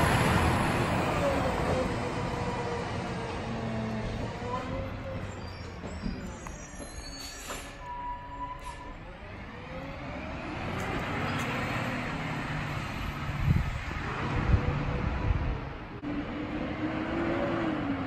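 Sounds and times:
garbage truck engine accelerating: 0.0s - 6.4s
brief high squeal: 4.4s - 9.0s.

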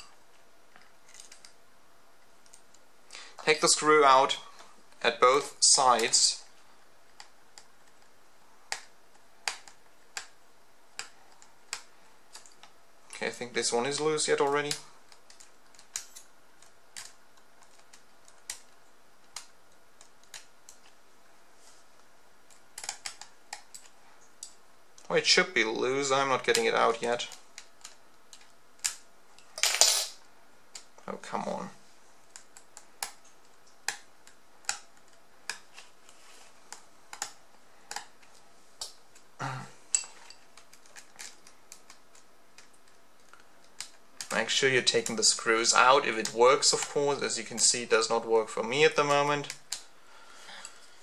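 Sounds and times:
small metal clicks and taps: 36.7s - 39.0s.

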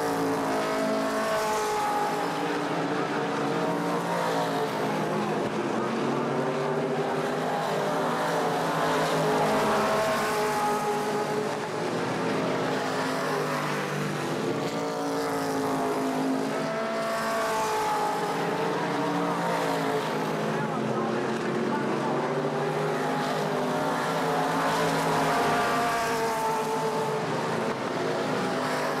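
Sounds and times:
race cars passing: 0.0s - 29.0s.

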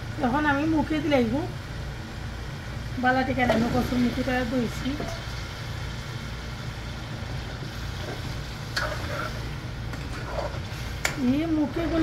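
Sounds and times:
steady low hum: 0.0s - 12.0s
spice paste sizzling: 3.2s - 12.0s.

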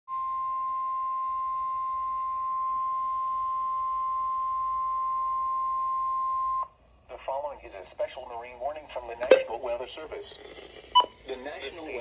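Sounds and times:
steady alert tone: 9.2s - 9.6s.

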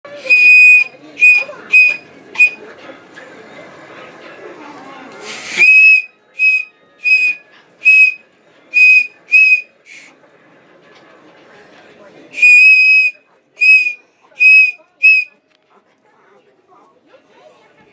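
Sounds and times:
toy train whistle toots: 0.1s - 2.6s, 5.4s - 10.1s, 12.4s - 15.4s.

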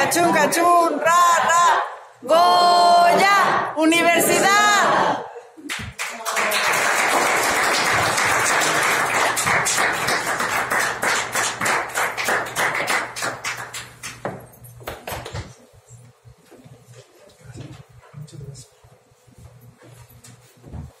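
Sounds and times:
group applauding: 5.6s - 15.5s.

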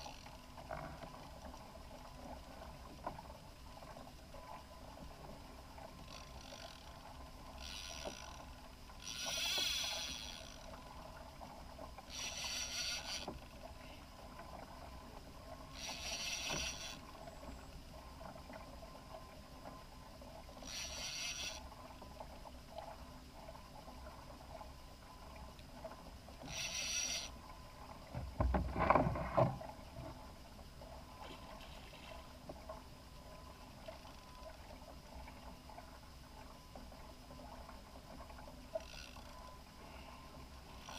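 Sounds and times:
fishing reel whirring: 0.0s - 0.4s, 5.8s - 11.3s, 11.9s - 13.6s, 15.6s - 17.5s, 20.5s - 22.0s, 26.4s - 27.4s, 33.9s - 34.6s, 38.7s - 39.7s, 40.7s - 40.9s.

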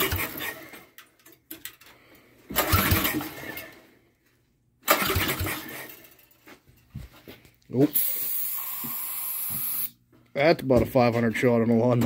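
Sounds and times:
go-kart engine pull-start sputtering: 0.0s - 0.7s, 2.5s - 3.8s, 4.8s - 6.1s.

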